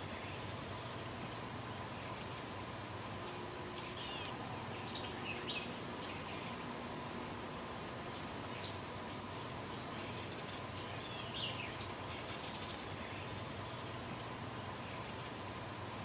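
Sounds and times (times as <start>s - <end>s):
background hiss: 0.0s - 16.0s
insects droning: 0.0s - 16.0s
bird chirps: 3.8s - 13.4s.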